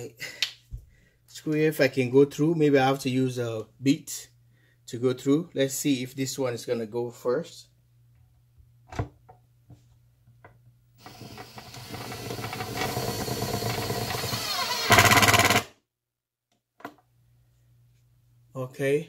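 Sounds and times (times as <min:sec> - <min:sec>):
power drill driving a screw: 0:11.0 - 0:15.7.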